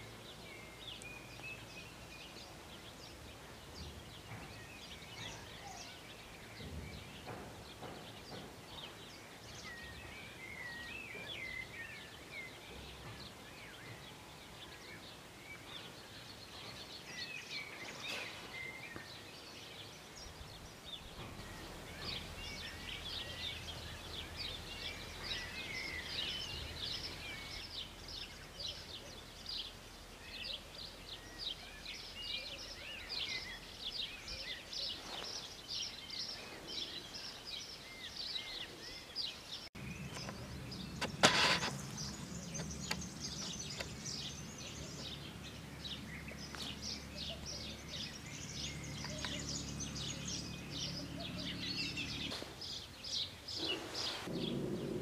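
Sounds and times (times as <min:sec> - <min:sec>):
songbirds chirping and singing: 0:00.0 - 0:55.0.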